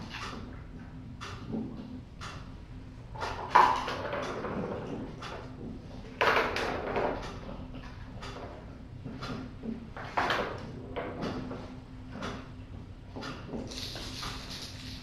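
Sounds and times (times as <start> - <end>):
kittens scuffling on hard floor: 13.7 - 15.0.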